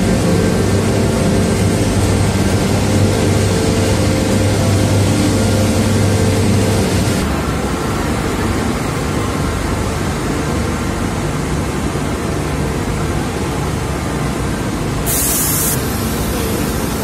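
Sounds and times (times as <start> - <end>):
mill machinery running: 0.0 - 17.0
short high hiss: 15.1 - 17.0.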